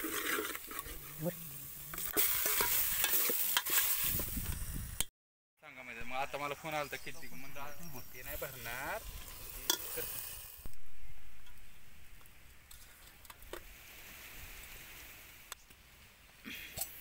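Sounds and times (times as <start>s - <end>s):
ladle stirring in metal pot: 0.0s - 1.1s, 1.9s - 4.0s
sizzling hiss: 0.0s - 5.1s, 6.0s - 17.0s.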